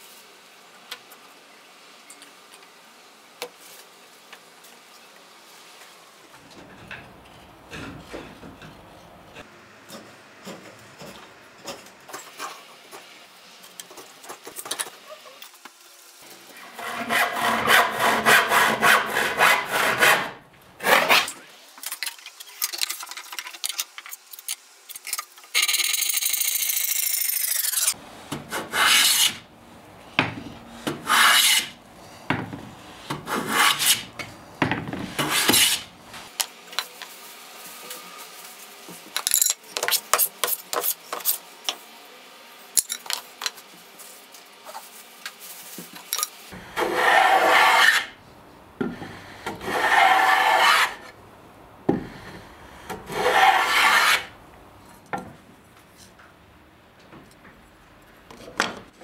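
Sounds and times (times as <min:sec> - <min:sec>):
hand plane scraping wood: 0:16.7 - 0:21.3, 0:28.4 - 0:29.4, 0:30.8 - 0:31.8, 0:32.7 - 0:34.1, 0:35.0 - 0:35.9, 0:46.8 - 0:48.1, 0:48.9 - 0:51.1, 0:52.1 - 0:54.3.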